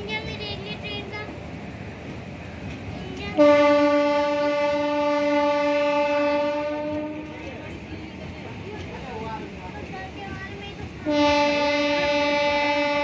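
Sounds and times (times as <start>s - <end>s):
rumble of rolling train coaches: 0.0s - 13.0s
locomotive horn blast: 3.4s - 7.3s, 11.0s - 13.0s.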